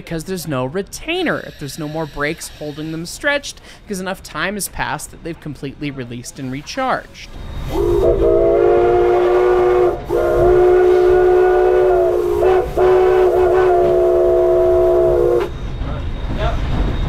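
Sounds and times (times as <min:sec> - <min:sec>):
steam locomotive whistle blasts: 0:07.6 - 0:15.6.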